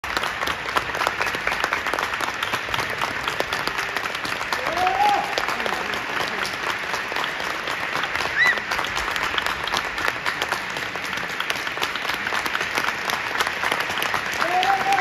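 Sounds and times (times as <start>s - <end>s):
audience applauding: 0.0s - 15.0s
high-pitched cheer: 4.5s - 5.8s, 8.2s - 8.8s, 14.3s - 15.0s.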